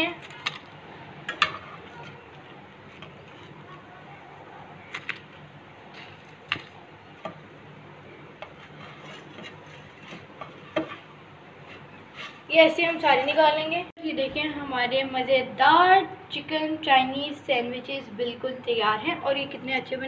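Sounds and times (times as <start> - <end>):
spatula tapping and scraping a pan: 5.9 - 7.5, 8.4 - 12.5.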